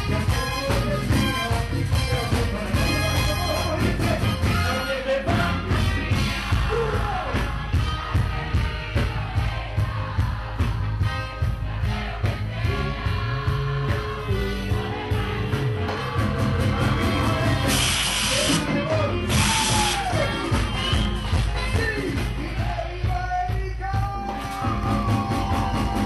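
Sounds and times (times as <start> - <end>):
man singing: 0.0 - 7.4, 21.5 - 25.4
live dance band playing: 0.0 - 26.0.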